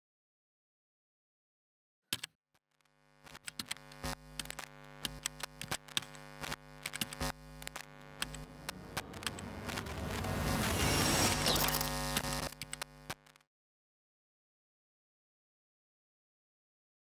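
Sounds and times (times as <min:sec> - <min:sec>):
crackling clicks: 0:02.1 - 0:13.5
electrical buzzing hum: 0:02.7 - 0:13.4
static hiss: 0:02.9 - 0:13.4.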